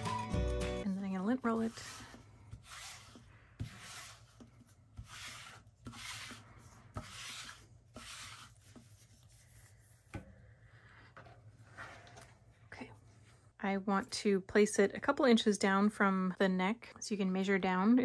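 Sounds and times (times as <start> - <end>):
lint roller rasping on fabric: 1.3 - 9.5.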